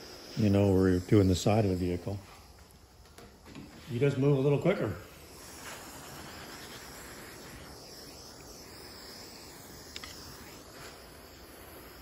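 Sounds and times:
torch flame hissing: 0.0 - 12.0.

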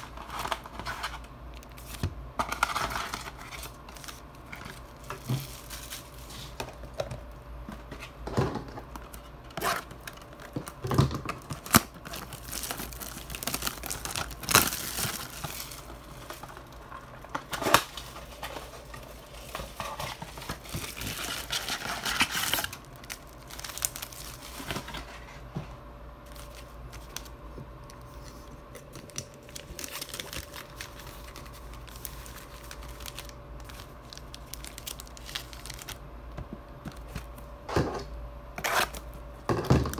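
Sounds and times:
foil packs crinkling: 0.0 - 25.3, 26.2 - 36.0
cardboard packaging tearing: 9.5 - 18.8, 19.4 - 24.9, 28.9 - 36.0.

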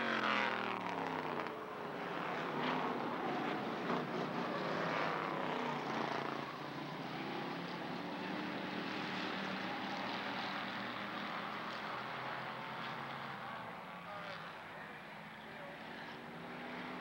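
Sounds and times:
race car engines passing: 0.1 - 17.0.

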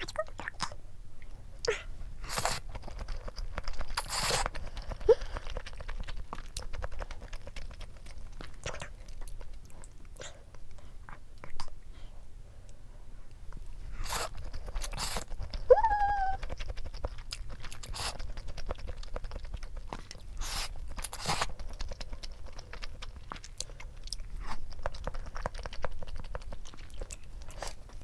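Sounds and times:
noodle slurping: 2.2 - 9.0, 13.9 - 26.6
wet chewing: 2.2 - 11.8, 13.5 - 28.0.

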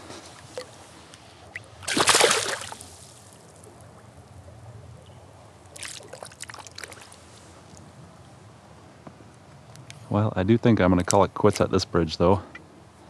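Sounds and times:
fish splashing into water: 1.6 - 3.2, 5.8 - 7.1
short splashing: 1.6 - 3.4.

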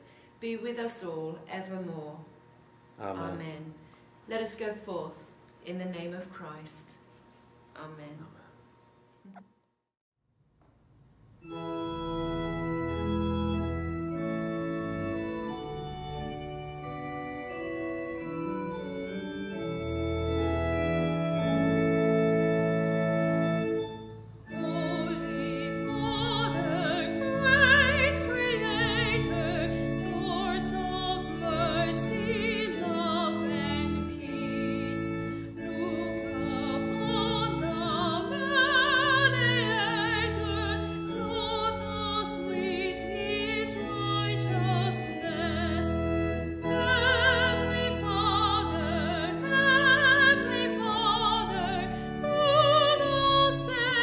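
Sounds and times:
church organ chords: 10.9 - 54.0
woman singing with vibrato: 24.6 - 46.0, 46.6 - 54.0.

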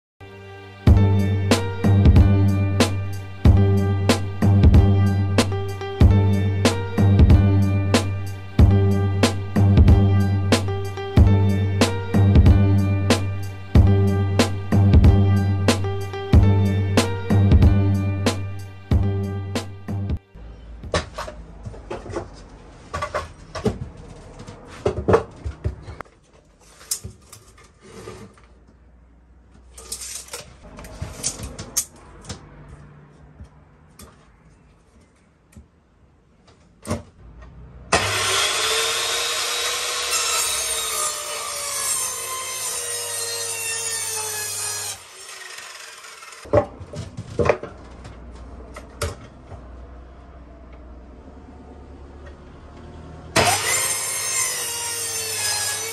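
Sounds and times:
miter saw cutting wood: 37.9 - 46.5, 53.4 - 55.9.

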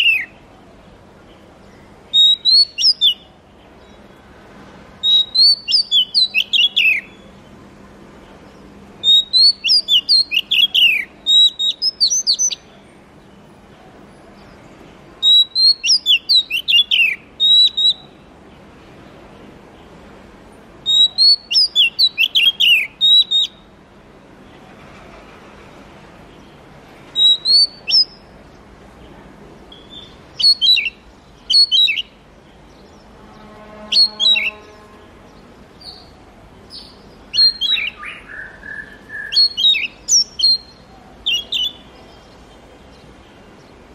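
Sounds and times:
songbird whistling song: 0.0 - 0.4, 1.6 - 4.1, 5.0 - 7.4, 8.5 - 12.7, 15.2 - 18.3, 20.8 - 23.8, 27.1 - 28.3, 29.7 - 43.8.

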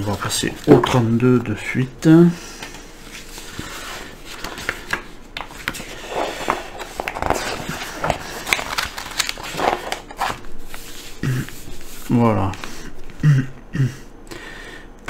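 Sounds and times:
magazine pages rustling: 0.0 - 1.2, 3.0 - 12.8.

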